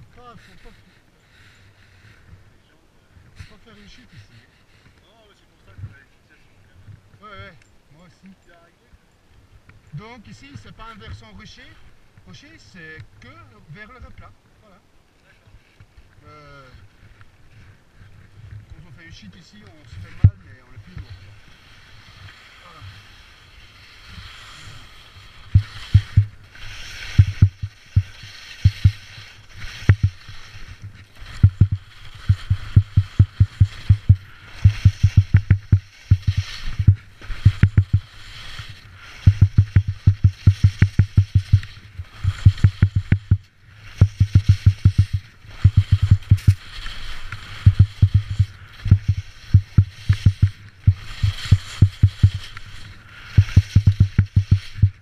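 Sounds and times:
skis scraping on snow: 0.0s - 8.2s, 9.8s - 55.0s
rapid low knocks: 25.5s - 26.4s, 27.1s - 29.0s, 29.8s - 30.2s, 31.4s - 38.1s, 39.2s - 41.7s, 42.3s - 46.6s, 47.6s - 52.4s, 53.4s - 55.0s.

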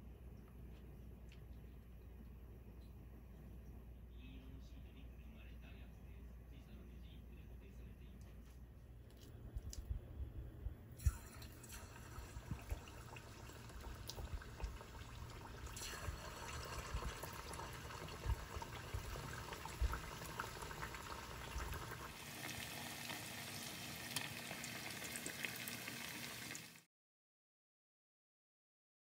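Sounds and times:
chicken deep-frying in oil: 11.0s - 26.9s.

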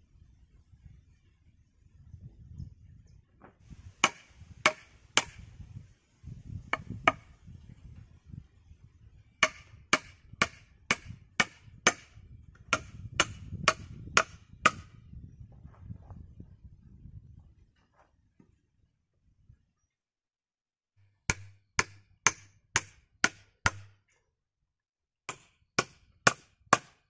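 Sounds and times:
hatchet chopping a log: 4.0s - 5.4s, 6.7s - 7.3s, 9.4s - 15.0s, 21.2s - 24.0s, 25.3s - 27.0s.

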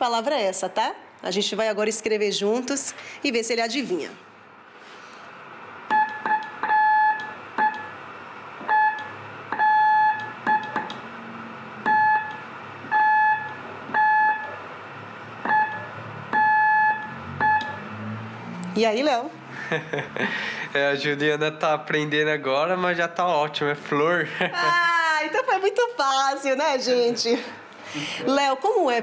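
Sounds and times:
morse code beeps: 5.9s - 7.9s, 8.7s - 10.9s, 11.8s - 14.6s, 15.4s - 17.8s.

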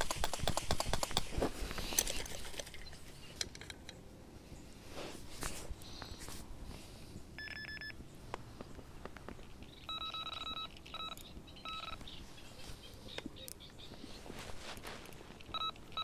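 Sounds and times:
fishing rods clicking: 0.0s - 4.0s
bite alarm beeping: 7.4s - 8.0s, 9.8s - 12.0s, 15.5s - 16.0s.

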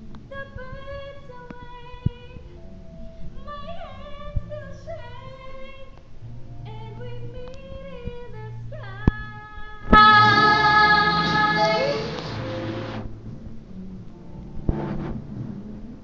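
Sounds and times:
music: 0.0s - 16.0s
woman singing slow melody: 0.2s - 2.6s, 6.6s - 12.4s.

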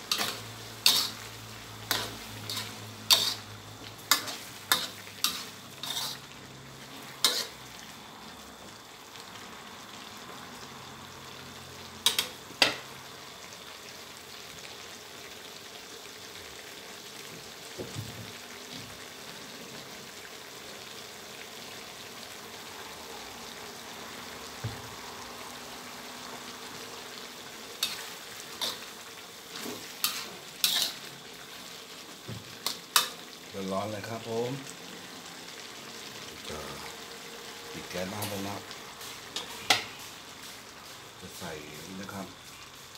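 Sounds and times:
food sizzling in a wok: 0.0s - 42.9s
metal spatula clanking on wok: 0.1s - 1.2s.

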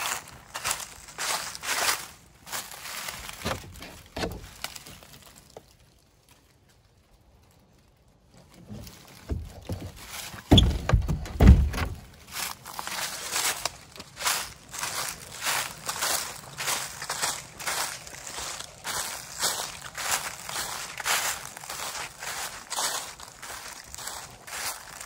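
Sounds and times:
door thudding shut and latching: 10.5s - 12.0s
light knocks of shed door: 10.5s - 12.0s.

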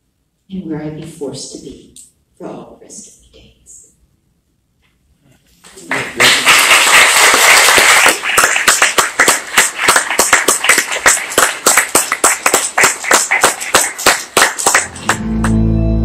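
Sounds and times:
audience applauding: 5.7s - 15.6s
sustained keyboard chords: 14.9s - 16.0s.

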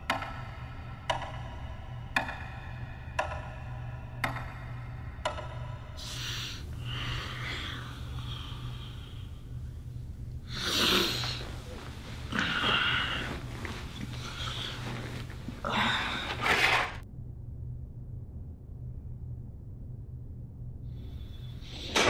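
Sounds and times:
clock-like ticks: 0.0s - 6.8s
low steady hum: 0.0s - 22.0s
man breathing heavily and snorting: 6.0s - 9.6s, 10.4s - 17.0s.

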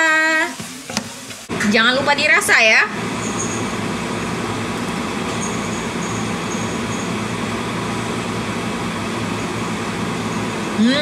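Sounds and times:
range hood fan humming: 0.0s - 11.0s
faint high whine: 4.8s - 7.4s.

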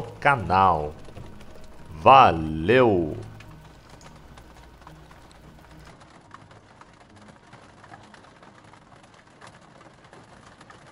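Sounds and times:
low hum: 0.0s - 5.9s
rain hiss on aircraft: 0.0s - 7.1s.

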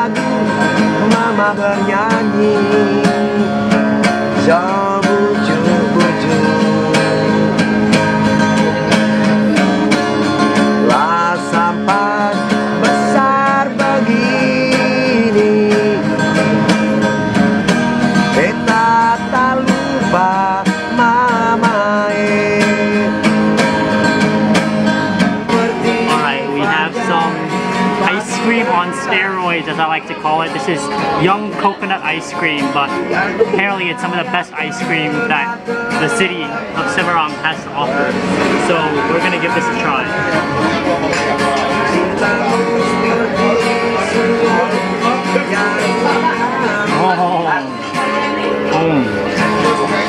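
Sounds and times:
acoustic guitar: 0.0s - 50.0s
person singing: 10.8s - 16.3s, 25.4s - 50.0s.

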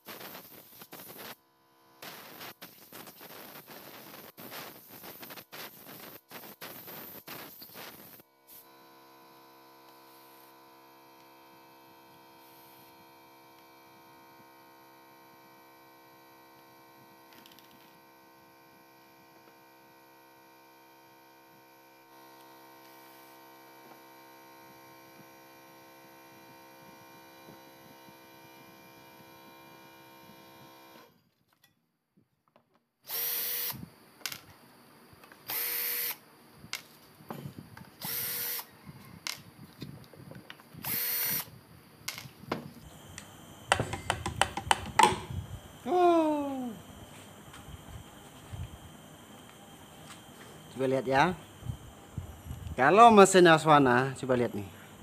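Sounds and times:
cordless drill spinning: 33.0s - 34.4s, 35.2s - 36.2s, 36.8s - 45.9s.

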